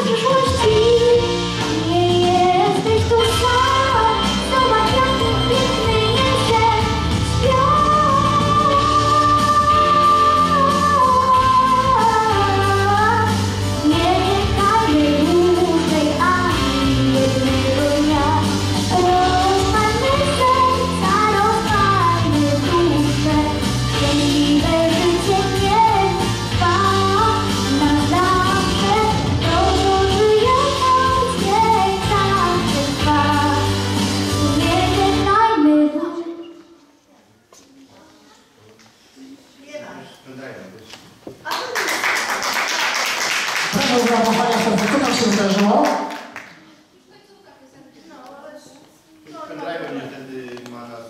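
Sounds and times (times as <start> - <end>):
girl singing into microphone: 0.0 - 36.9.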